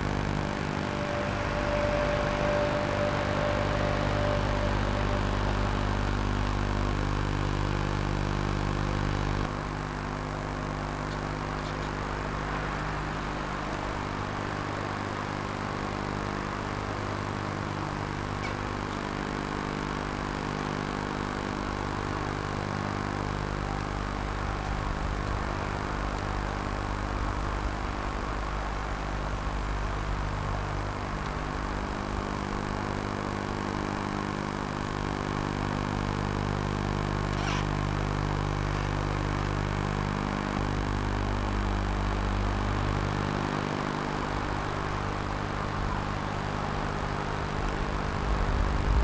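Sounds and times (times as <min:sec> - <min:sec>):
background hiss: 0:00.0 - 0:09.5
steady low hum: 0:00.0 - 0:49.0.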